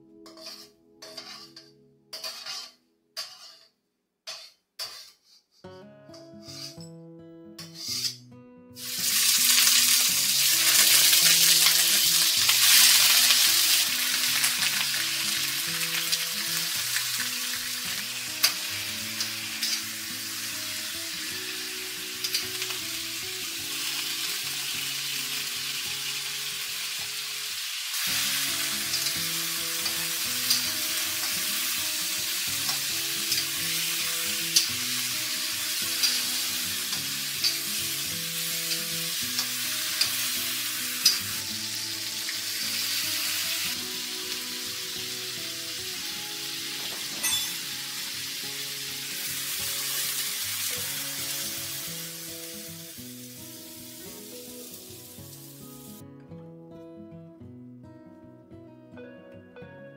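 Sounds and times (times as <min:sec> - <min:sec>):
chicken frying in oil: 0:08.8 - 0:46.9.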